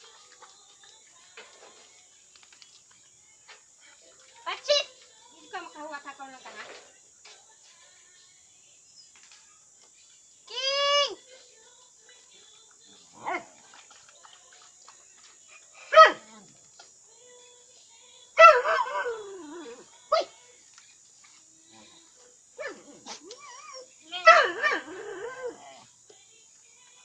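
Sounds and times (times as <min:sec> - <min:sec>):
dogs yipping and whining: 0:13.1 - 0:14.0, 0:15.3 - 0:16.7, 0:18.4 - 0:20.3, 0:22.6 - 0:25.8.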